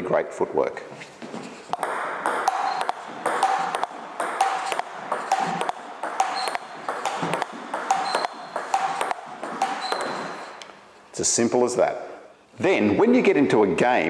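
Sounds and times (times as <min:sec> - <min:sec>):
ping pong ball clicking: 0:01.7 - 0:10.8.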